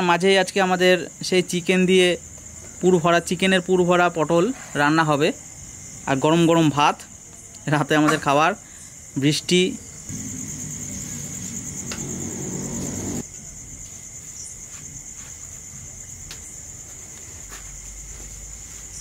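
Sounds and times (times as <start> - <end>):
crickets chirping: 0.0 - 19.0
low hum: 10.1 - 13.2.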